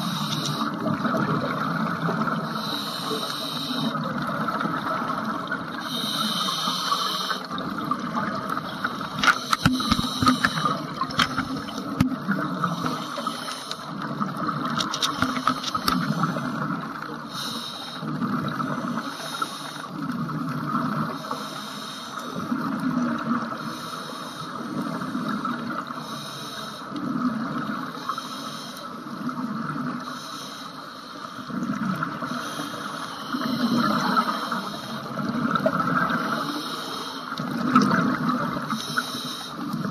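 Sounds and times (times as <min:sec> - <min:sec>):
scuba regulator inhale hiss: 0:00.0 - 0:00.8, 0:02.5 - 0:04.0, 0:05.8 - 0:07.5, 0:08.7 - 0:10.9, 0:12.7 - 0:13.9, 0:17.3 - 0:18.1, 0:19.0 - 0:19.9, 0:21.2 - 0:22.4, 0:23.6 - 0:25.4, 0:26.0 - 0:27.0, 0:28.0 - 0:29.0, 0:30.1 - 0:31.5, 0:32.2 - 0:35.2, 0:36.2 - 0:37.4, 0:38.7 - 0:39.7
bubbles rumbling on exhale: 0:37.5 - 0:38.7.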